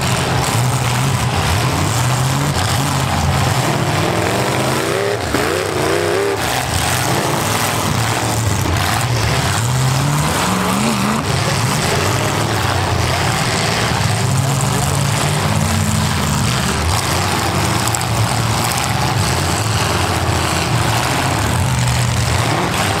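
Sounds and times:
car engines revving: 0:00.0 - 0:23.0.

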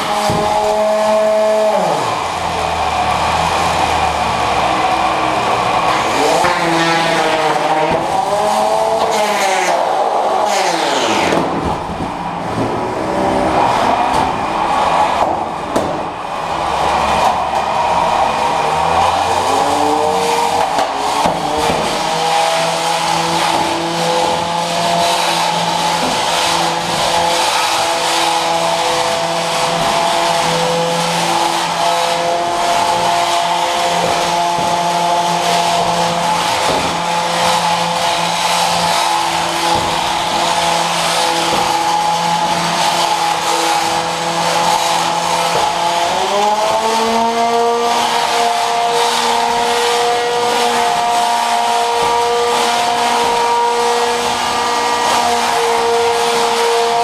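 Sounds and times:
electric motors whining: 0:00.0 - 0:57.0.

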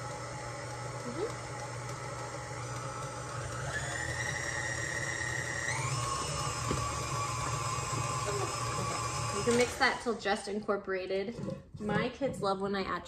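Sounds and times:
stand mixer motor whine: 0:00.0 - 0:10.1.

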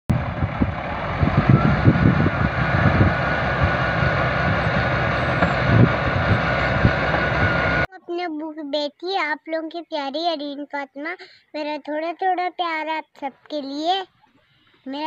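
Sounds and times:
bulldozer diesel engine under load: 0:00.1 - 0:07.9
low thuds: 0:00.1 - 0:07.9.

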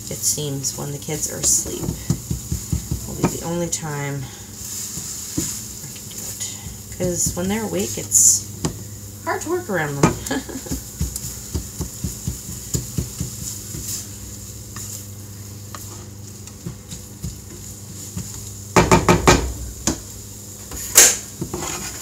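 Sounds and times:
eggs sizzling: 0:00.0 - 0:22.0
spatula stirring in frying pan: 0:00.0 - 0:22.0
spatula tapping pan: 0:01.4 - 0:03.6, 0:09.9 - 0:14.1, 0:15.7 - 0:20.1.

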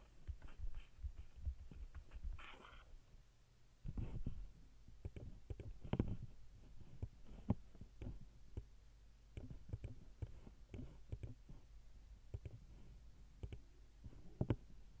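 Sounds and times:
faint low hum: 0:00.0 - 0:15.0
computer mouse clicking: 0:05.0 - 0:06.2, 0:09.4 - 0:11.4, 0:12.3 - 0:12.6, 0:13.4 - 0:13.6.

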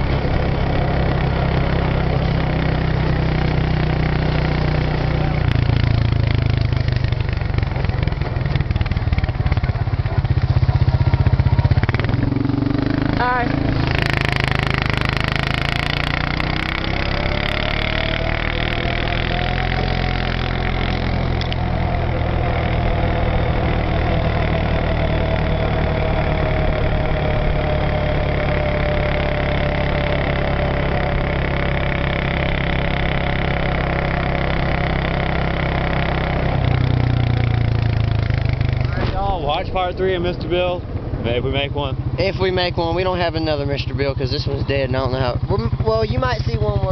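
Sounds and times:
engine running steadily: 0:00.0 - 0:46.9.

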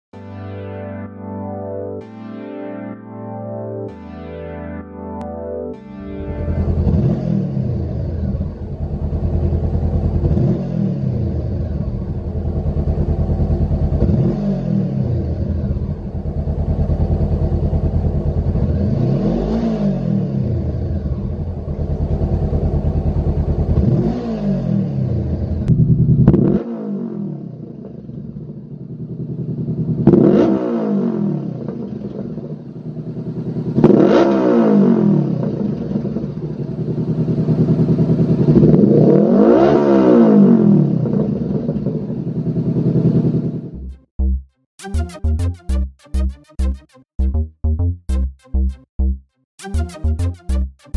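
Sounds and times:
motorcycle engine revving: 0:06.2 - 0:44.0.

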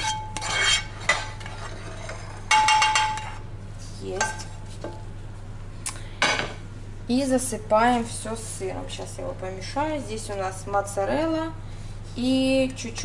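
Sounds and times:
spatula scraping frying pan: 0:00.0 - 0:03.4.

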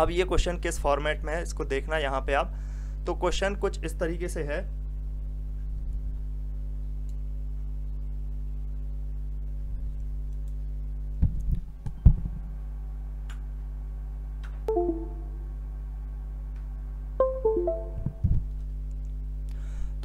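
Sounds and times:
low electrical hum: 0:00.0 - 0:20.0
chime of falling notes: 0:14.7 - 0:15.4, 0:17.2 - 0:18.2.

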